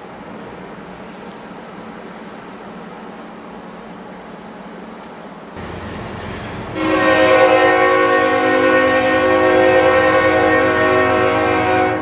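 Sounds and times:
low engine rumble: 0:05.6 - 0:11.9
locomotive air horn chord: 0:05.6 - 0:12.0.

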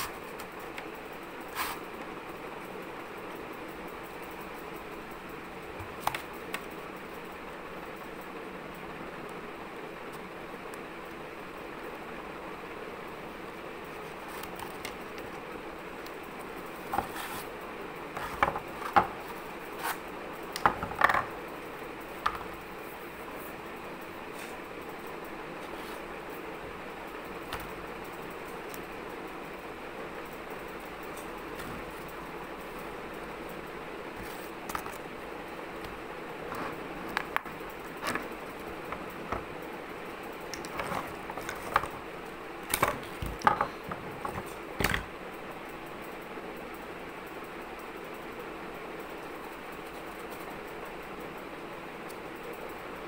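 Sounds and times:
background hiss: 0:00.0 - 0:53.0
cardboard tubes knocking and scraping: 0:16.9 - 0:17.5.

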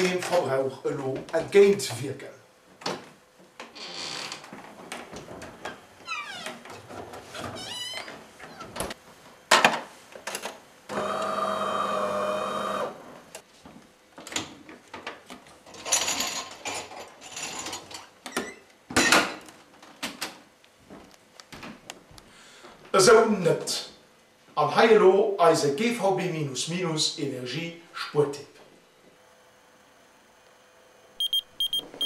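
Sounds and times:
small appliance motor humming: 0:10.9 - 0:13.0.

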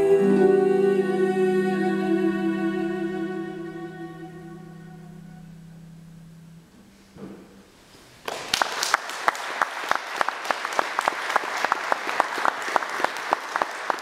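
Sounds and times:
low held musical note: 0:00.0 - 0:07.8
audience applauding: 0:08.2 - 0:14.0.

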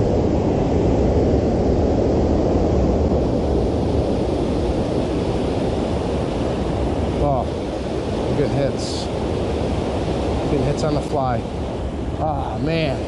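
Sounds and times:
creek water rushing over dam: 0:05.1 - 0:11.6.

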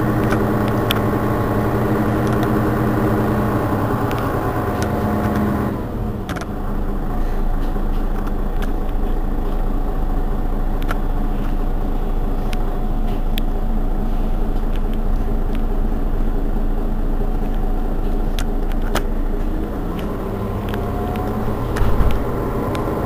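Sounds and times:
bus engine idling: 0:00.0 - 0:23.0
rising whine: 0:17.2 - 0:23.0.

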